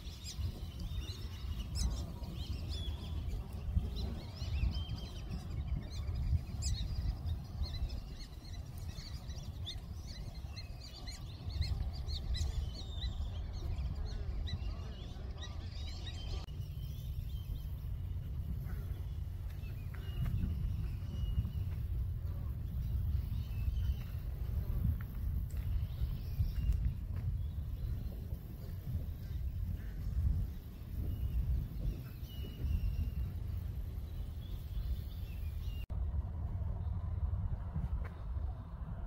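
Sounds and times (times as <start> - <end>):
birds chirping: 0.0 - 35.9
low rumble: 16.2 - 39.0.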